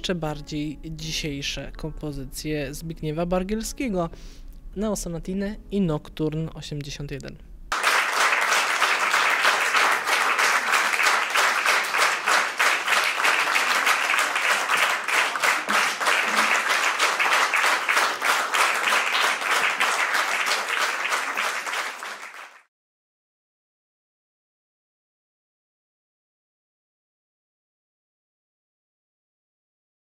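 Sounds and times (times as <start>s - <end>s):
audience applauding: 7.7s - 22.7s.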